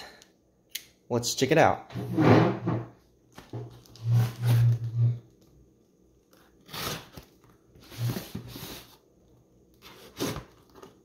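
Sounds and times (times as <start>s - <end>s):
knife slitting packing tape: 6.6s - 7.3s.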